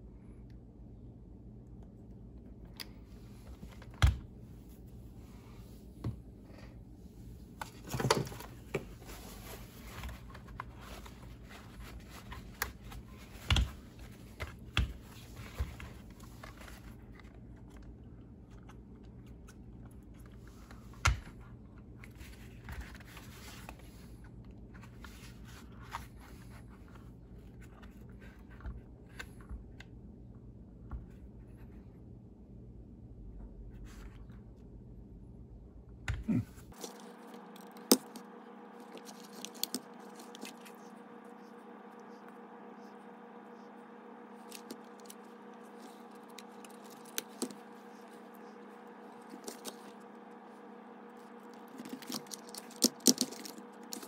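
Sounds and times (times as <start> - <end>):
plastic parts clicking and knocking: 51.6 - 54.0.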